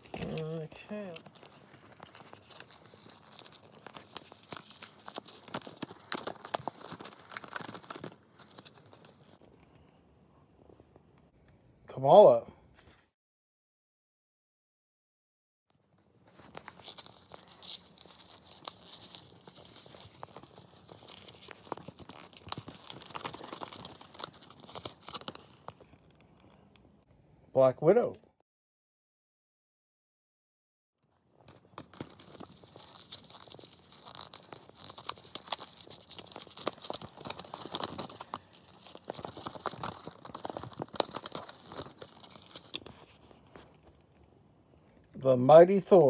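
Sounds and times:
gum wrappers crinkling: 0.0 - 9.4, 16.2 - 26.8, 31.3 - 44.3.

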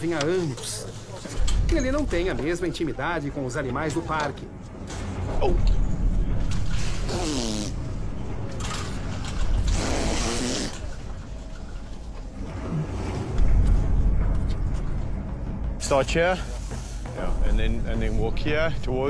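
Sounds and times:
steady low rumble: 4.4 - 19.0.

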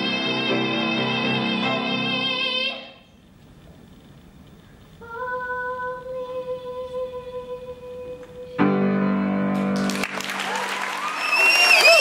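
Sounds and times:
girl singing long note: 5.0 - 9.0
applause: 9.6 - 12.0.

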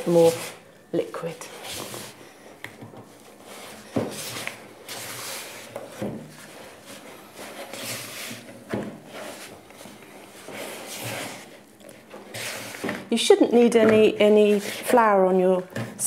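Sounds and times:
spatula scraping dough in bowl: 10.4 - 13.0, 14.0 - 15.1.

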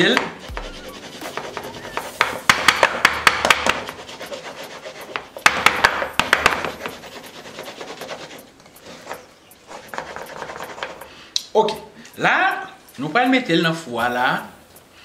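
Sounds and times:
cake pan knocking: 0.0 - 4.0, 5.2 - 7.0.

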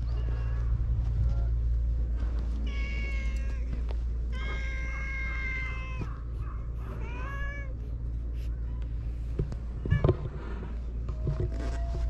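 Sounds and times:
steady low rumble: 0.0 - 12.0
cat meowing: 2.6 - 6.2, 6.9 - 7.8.

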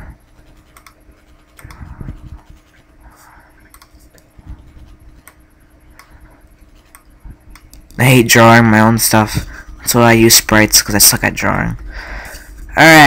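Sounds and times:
mouse rubbing on desk: 0.3 - 5.3
computer mouse clicks: 0.5 - 2.7, 3.6 - 8.0
soft low thumps: 1.6 - 2.7, 4.2 - 5.3.

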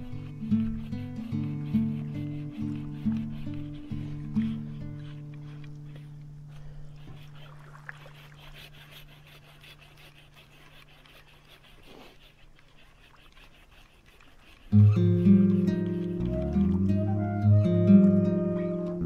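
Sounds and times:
saw rasping through log: 0.0 - 16.2
low sustained music note: 14.8 - 19.0.

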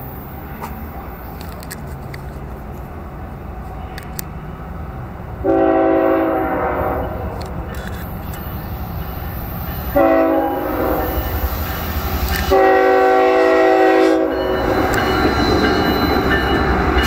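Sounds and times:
diesel locomotive rumbling: 0.0 - 17.0
train air horn blast: 5.4 - 7.3, 9.9 - 11.3, 12.4 - 14.6.

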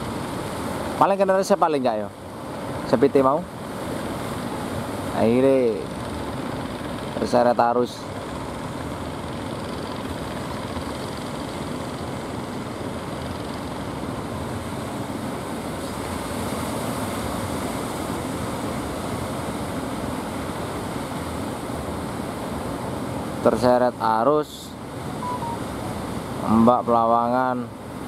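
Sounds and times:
waves breaking: 0.0 - 7.2, 8.2 - 28.0.

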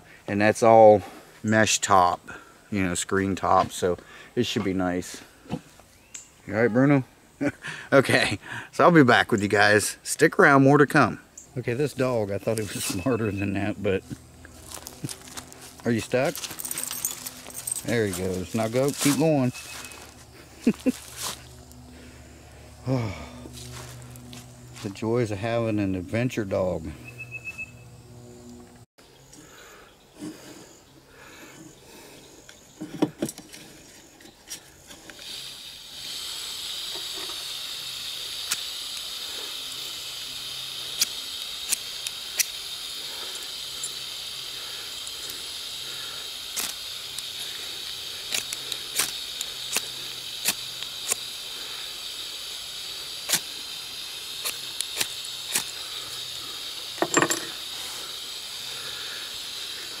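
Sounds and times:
high-pitched hiss: 0.0 - 60.0.

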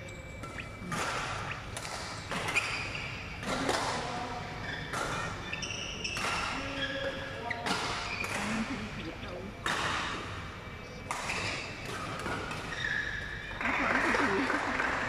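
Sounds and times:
racket hitting shuttlecock: 0.4 - 2.8, 6.0 - 6.6
shoes squeaking on court floor: 0.4 - 3.6, 4.6 - 8.6, 11.3 - 14.8.

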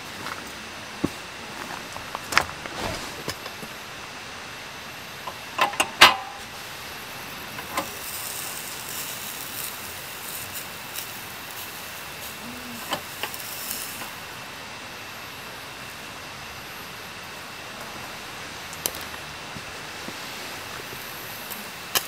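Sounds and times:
steady hiss: 0.0 - 22.0
sharp clicks and knocks: 5.3 - 6.4.

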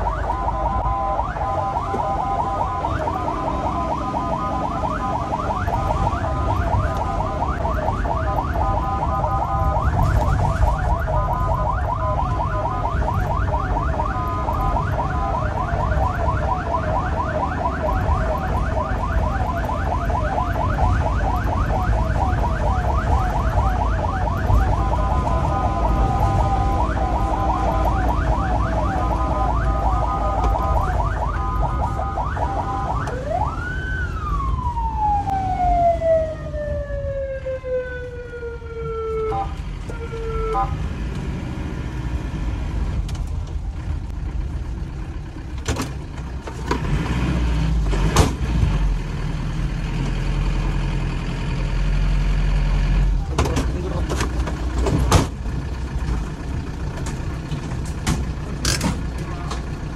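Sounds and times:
ambulance siren yelping: 0.0 - 40.8
engine and road rumble: 0.0 - 59.9.

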